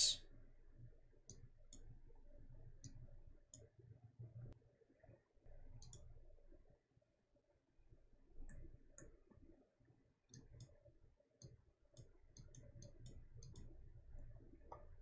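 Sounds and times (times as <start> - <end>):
computer mouse clicks: 2.8 - 3.7, 5.7 - 6.1, 10.3 - 10.8, 11.4 - 15.0.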